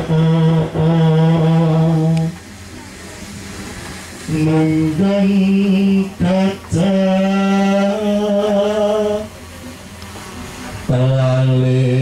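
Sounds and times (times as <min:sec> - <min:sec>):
man chanting: 0:10.9 - 0:12.0.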